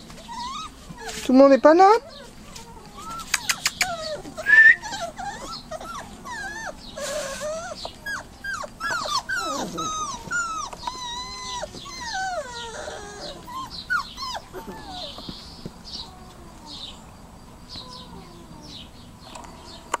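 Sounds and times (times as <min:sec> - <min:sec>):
puppies whining: 0:00.0 - 0:17.0
sharp clicks: 0:03.2 - 0:03.9.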